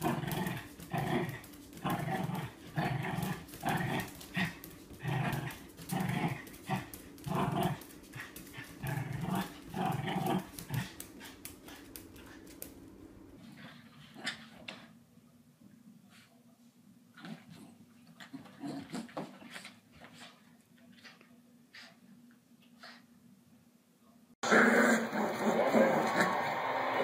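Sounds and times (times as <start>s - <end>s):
small dog growling: 0.0s - 12.5s, 17.2s - 19.7s.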